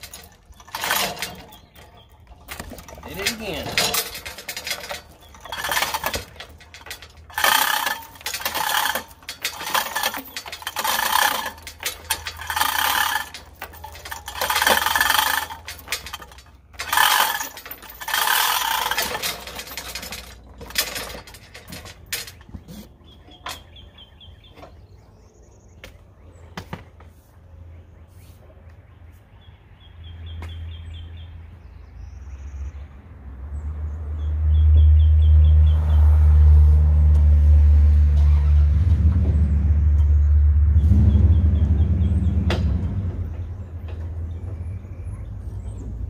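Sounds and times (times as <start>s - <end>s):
hoist chain rattling: 0.0s - 23.8s.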